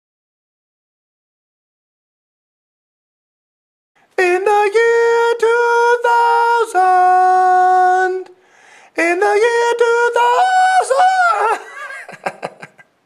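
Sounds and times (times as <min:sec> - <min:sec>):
man singing high notes: 0:04.2 - 0:11.8.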